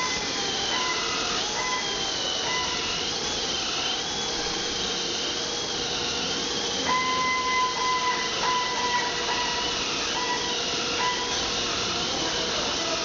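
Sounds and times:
buffing machine hiss: 0.0s - 13.0s
high wavering whine: 0.0s - 13.0s.

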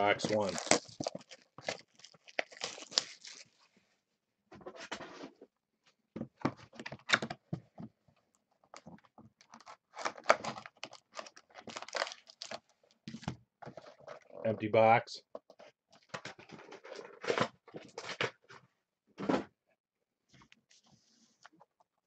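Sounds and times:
cardboard rustling: 0.2s - 3.6s
shrink wrap tearing: 0.2s - 3.6s, 9.4s - 12.6s
plastic crinkling: 0.2s - 3.7s, 8.7s - 14.4s.

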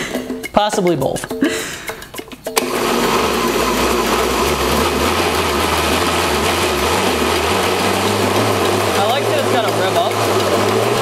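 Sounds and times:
blender motor running: 2.6s - 11.0s.

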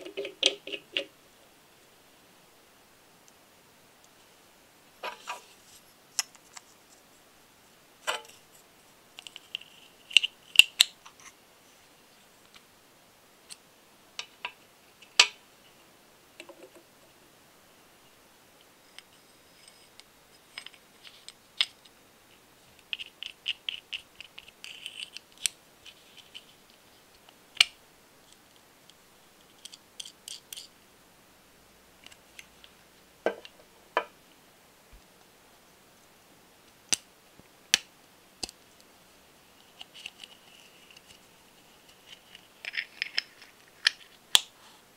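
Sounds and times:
small metal parts clicking: 29.6s - 30.7s.

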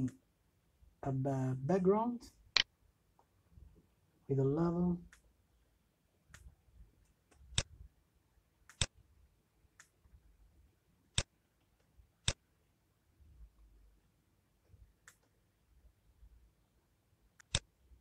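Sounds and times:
computer mouse clicking: 8.7s - 9.0s, 15.0s - 15.4s, 17.4s - 17.7s.

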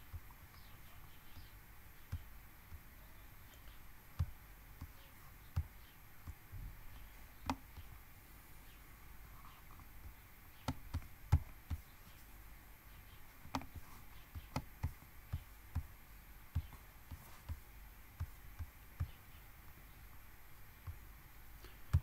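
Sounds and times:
faint background hum: 0.0s - 22.0s
computer mouse clicks: 7.4s - 7.9s, 9.8s - 11.8s, 13.4s - 15.9s.

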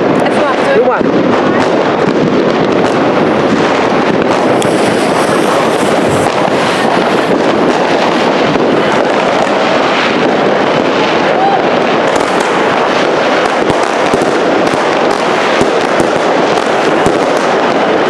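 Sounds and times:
fireworks barrage of rapid bangs: 0.0s - 18.0s.

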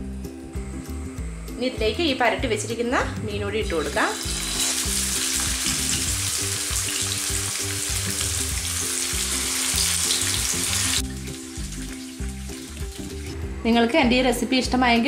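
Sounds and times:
fish sizzling in hot oil: 3.7s - 13.4s.

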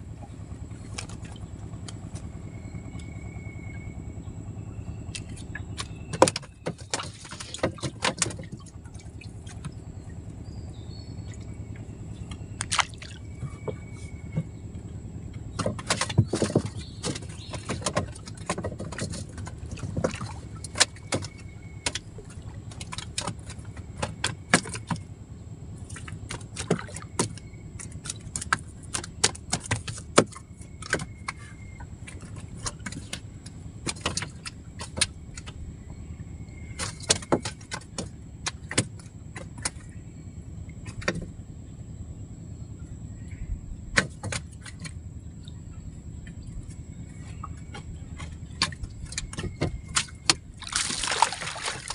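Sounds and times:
steady low rumble: 0.0s - 51.9s.

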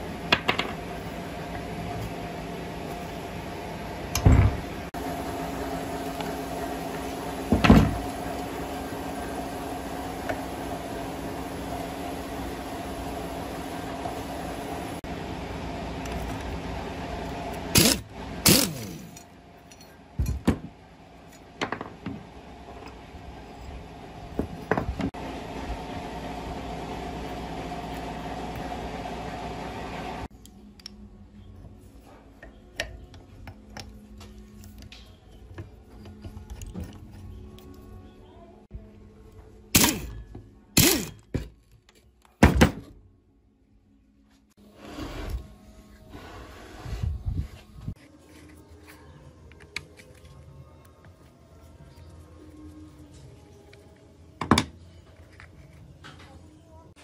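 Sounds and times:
steady background hum: 0.0s - 57.0s
impact wrench bursts: 17.7s - 19.2s, 39.8s - 40.2s, 40.8s - 41.3s.

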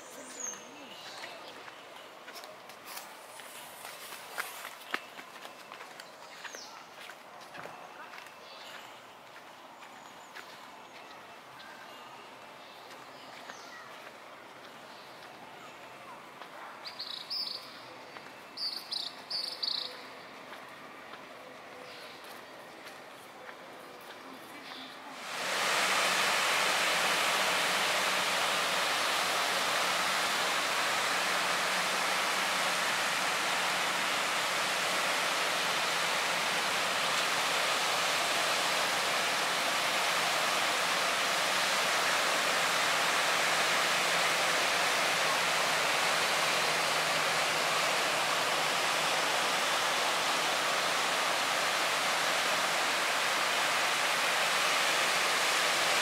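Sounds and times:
waves breaking on beach: 25.1s - 56.0s.

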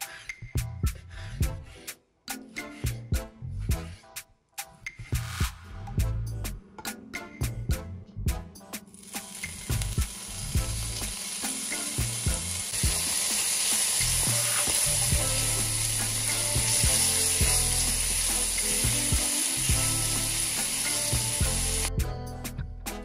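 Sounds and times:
bacon sizzling in a pan: 8.9s - 21.9s.

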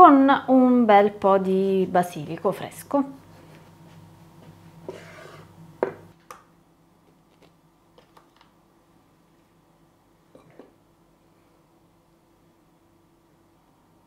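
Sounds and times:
knife scraping cheese: 4.8s - 5.5s.

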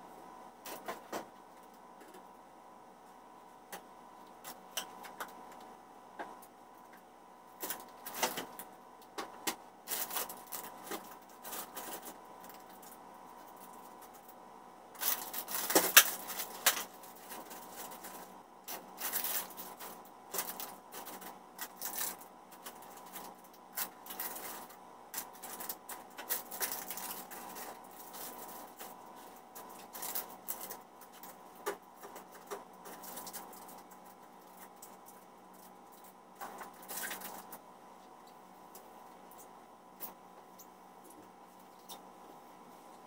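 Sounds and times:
plastic packets handled on glass counter: 9.9s - 14.3s, 15.0s - 35.2s, 36.0s - 37.6s.

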